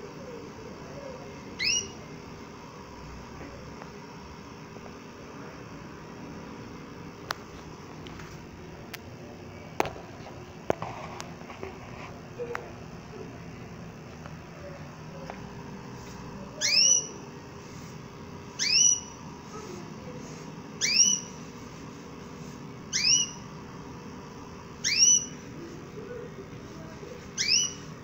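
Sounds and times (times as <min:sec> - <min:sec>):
canary whistled calls: 0:01.6 - 0:02.0, 0:16.6 - 0:17.2, 0:18.6 - 0:19.2, 0:20.8 - 0:21.3, 0:22.9 - 0:23.4, 0:24.8 - 0:25.4, 0:27.4 - 0:27.9.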